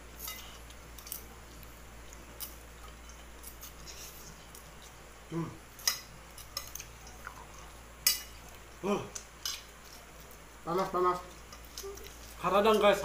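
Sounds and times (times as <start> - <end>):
steady low hum: 0.0 - 13.0
cutlery clicking against plates: 5.8 - 7.2, 8.0 - 8.5, 9.1 - 10.0.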